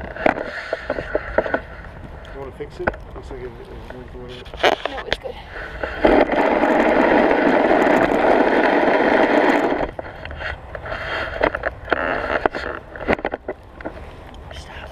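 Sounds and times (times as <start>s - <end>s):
blade scraping snow: 4.2s - 13.5s.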